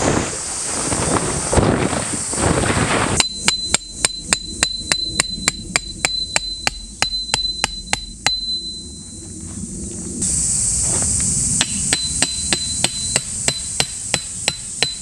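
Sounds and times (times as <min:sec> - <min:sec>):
hammer striking metal tent peg: 0:03.2 - 0:08.6, 0:11.6 - 0:15.0.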